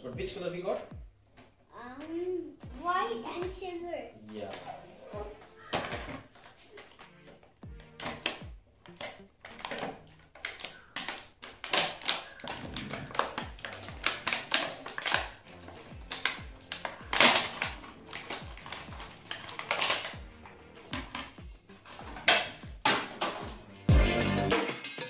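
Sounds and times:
background music with low beat: 0.0 - 11.1, 11.7 - 25.0
plastic packaging crackling: 8.1 - 23.6.

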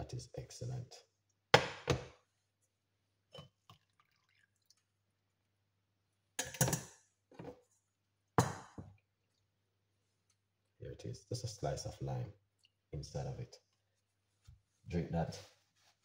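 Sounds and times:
tea dripping: 3.4 - 5.0.

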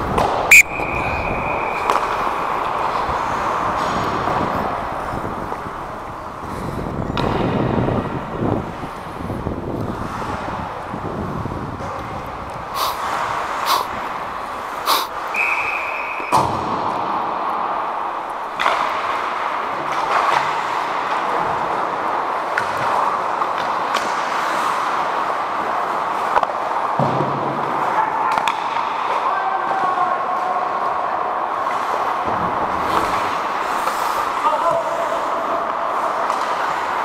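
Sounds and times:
skate blades scraping ice: 0.0 - 7.4, 9.8 - 11.9, 12.5 - 15.9, 32.7 - 37.0
hockey sticks and puck clacking: 0.0 - 8.8, 11.8 - 30.9, 31.5 - 37.0
brief high tone: 0.5 - 2.6.

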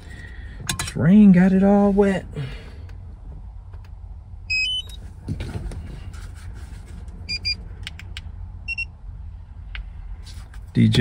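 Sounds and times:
steady low rumble: 0.0 - 11.0
electronic beeps: 4.5 - 5.0, 7.3 - 7.6, 8.7 - 8.9.

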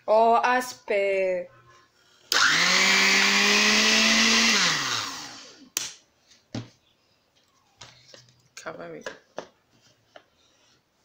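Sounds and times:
blender motor running: 2.3 - 5.6.

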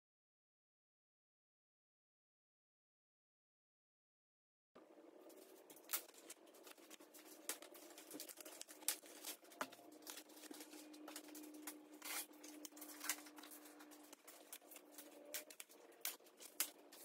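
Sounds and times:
steady low hum: 4.8 - 17.0
plastic wrap rustling and crinkling: 5.2 - 17.0.

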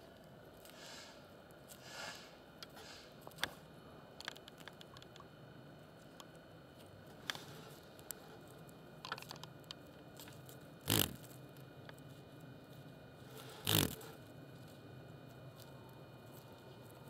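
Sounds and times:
beetle wings whirring: 10.8 - 11.3, 13.3 - 14.1.

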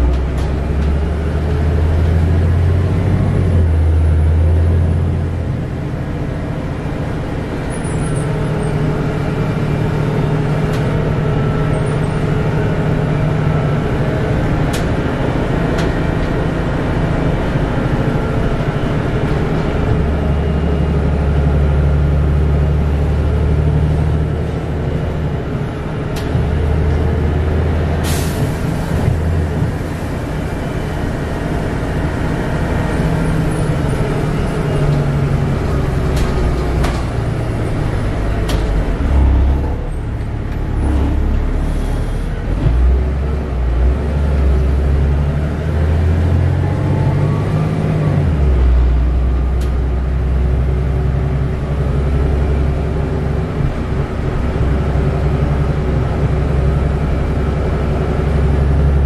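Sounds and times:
bus engine drone: 0.0 - 59.0
air hiss from bus: 28.0 - 29.0.

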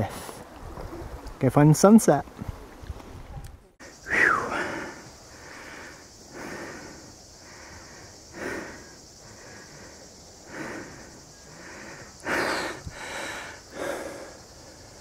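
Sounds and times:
person breathing heavily: 3.9 - 15.0.

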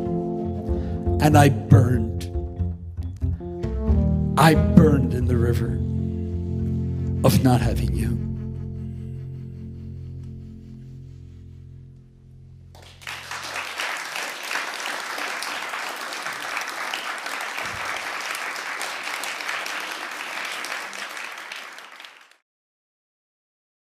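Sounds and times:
jazz band held chord: 3.4 - 8.6
audience applause: 12.8 - 22.4.

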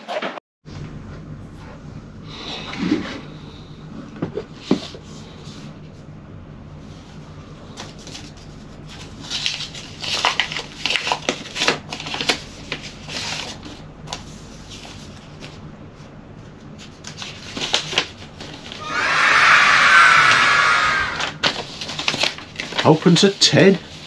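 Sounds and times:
paper rustling and flapping: 7.8 - 15.6, 16.8 - 18.7, 21.2 - 23.0.

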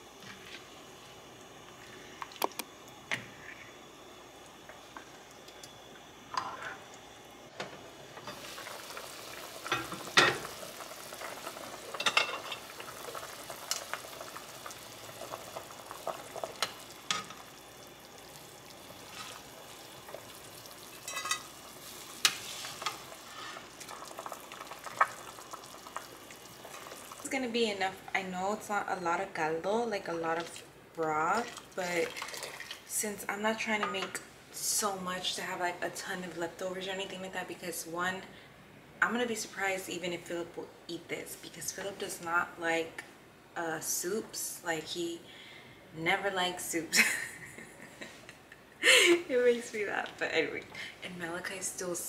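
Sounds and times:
simmering broth hissing: 8.2 - 27.3
spoon stirring and scraping pot: 21.0 - 21.5.

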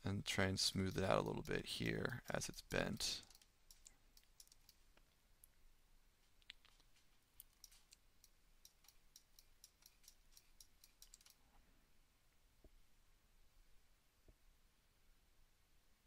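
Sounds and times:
computer mouse clicking: 0.7 - 5.1, 6.4 - 11.4.

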